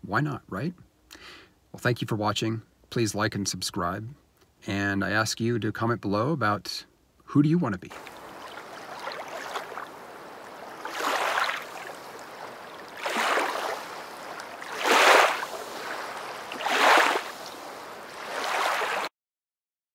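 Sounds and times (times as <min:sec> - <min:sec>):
small waves lapping on pebbles: 0:07.9 - 0:19.1.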